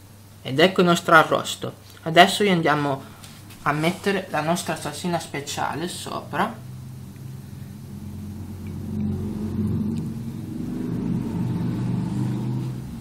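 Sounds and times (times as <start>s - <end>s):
low rumbling motor drone: 5.8s - 13.0s.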